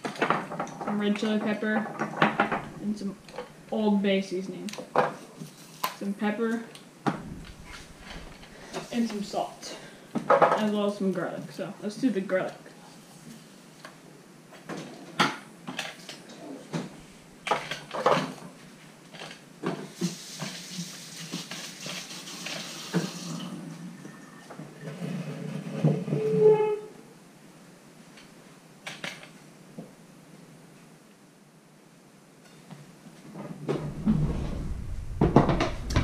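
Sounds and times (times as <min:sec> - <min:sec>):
hissing running water: 0:20.0 - 0:24.0.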